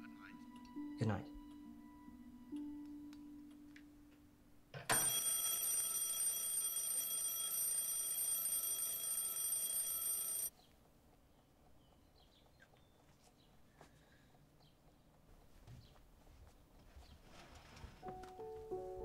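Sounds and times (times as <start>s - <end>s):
alarm clock bell ringing: 4.9s - 10.5s.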